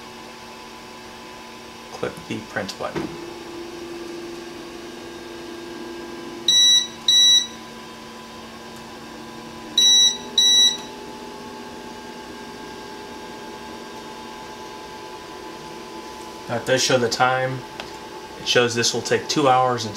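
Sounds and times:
machine's steady low hum: 0.0 - 19.9
short electronic beeps: 6.5 - 7.6, 9.8 - 10.9.

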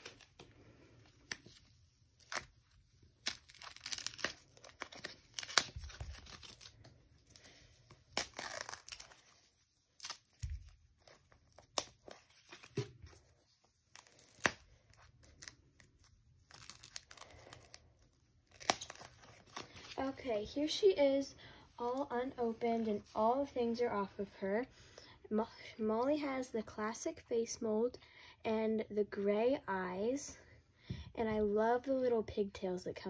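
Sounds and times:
packaging tearing and crinkling: 2.2 - 9.4, 13.9 - 15.6, 16.4 - 20.0.

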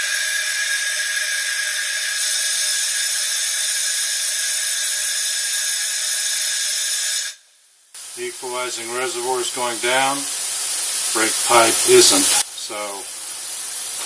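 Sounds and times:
compressed air hissing: 8.0 - 14.0.

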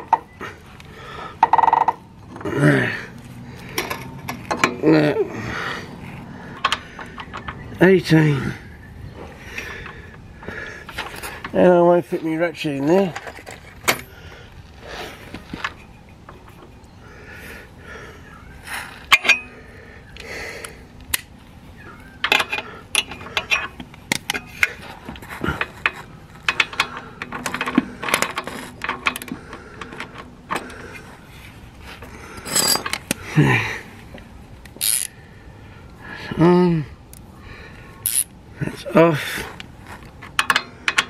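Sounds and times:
spanner clinking on bolt: 19.1 - 19.5, 22.2 - 30.8, 32.4 - 33.2, 34.8 - 35.1, 40.2 - 41.0.

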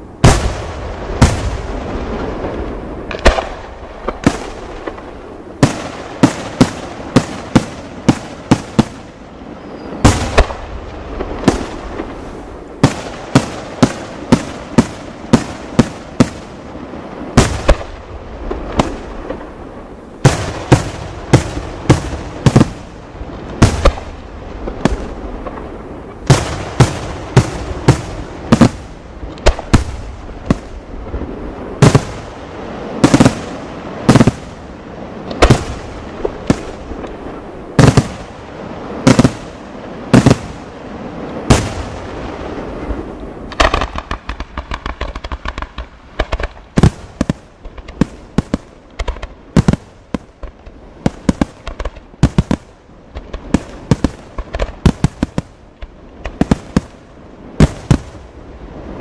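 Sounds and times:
fireworks bursting with loud bangs: 0.0 - 59.0
rumble: 0.0 - 59.0
small quick firework cracks: 2.5 - 8.9, 23.6 - 24.2, 43.5 - 57.0.

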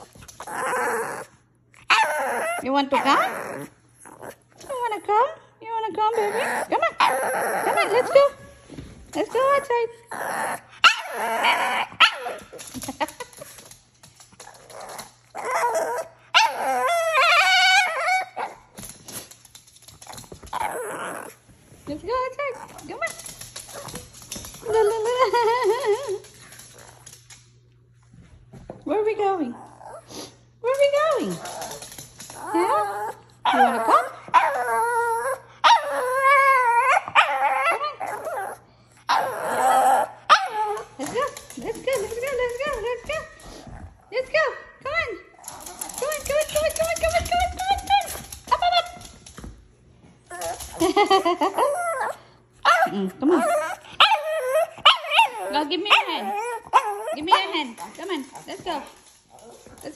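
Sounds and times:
dog whining and yipping: 0.4 - 3.6, 14.7 - 18.6, 32.4 - 41.0, 51.5 - 57.3.

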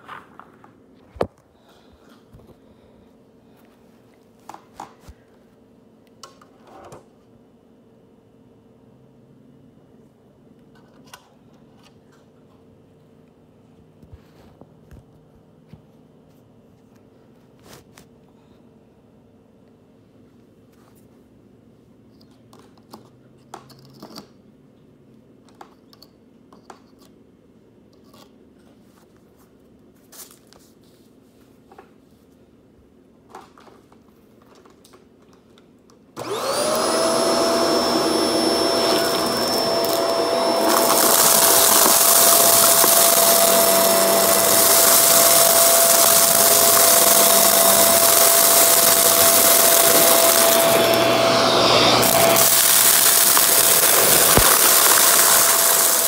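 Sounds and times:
vacuum cleaner motor whine: 36.2 - 56.0.

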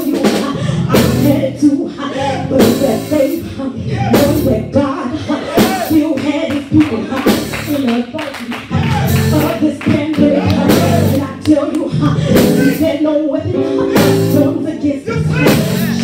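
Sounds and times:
voices singing: 0.0 - 16.0
drum kit with cymbal crashes: 12.3 - 13.0, 13.9 - 14.6, 15.3 - 16.0.

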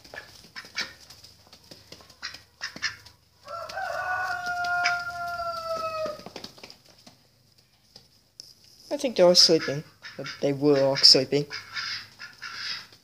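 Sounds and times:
footsteps on dry ground: 0.0 - 6.4
rooster crowing: 3.4 - 6.3.

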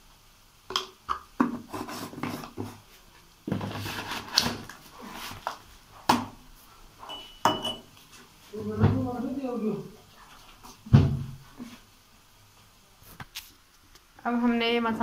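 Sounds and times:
utensils knocking on pan: 7.1 - 7.9.

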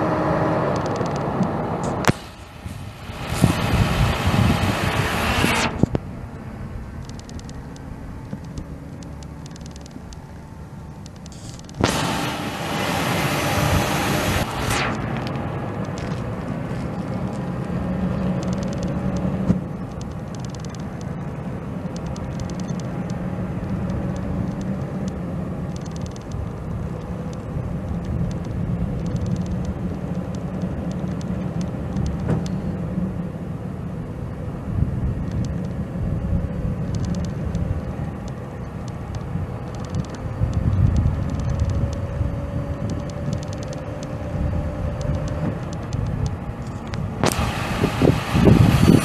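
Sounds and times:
diesel engine running: 0.0 - 49.0
faint whine: 0.6 - 49.0.

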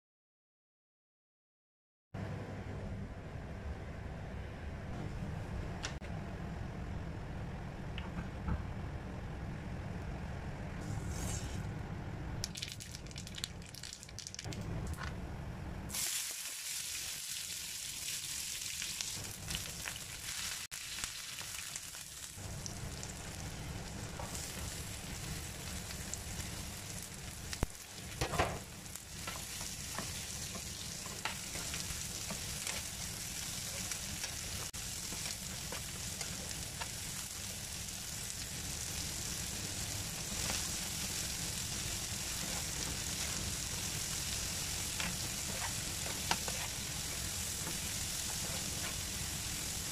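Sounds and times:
spatula scraping a pan: 10.8 - 11.6, 44.8 - 49.2
oil sizzling in a frying pan: 15.9 - 49.9.

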